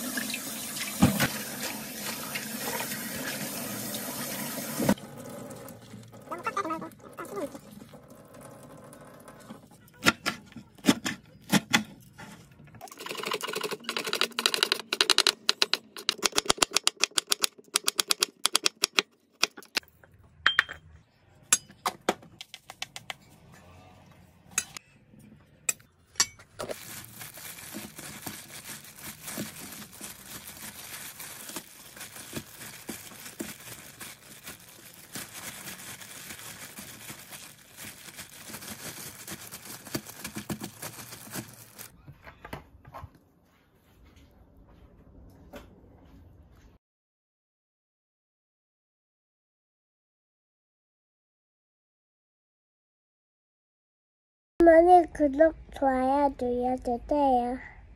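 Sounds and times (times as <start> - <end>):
gloved hands tossing greens: 26.6 - 41.9.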